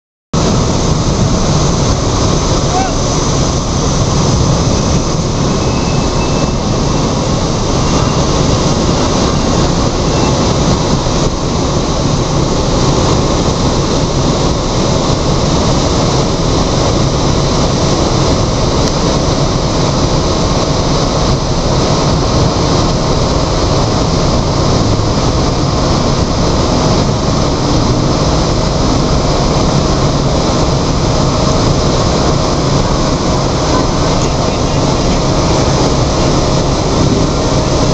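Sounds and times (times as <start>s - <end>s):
jet aircraft flying overhead: 0.4s - 37.9s
thin jet engine whine: 0.4s - 37.9s.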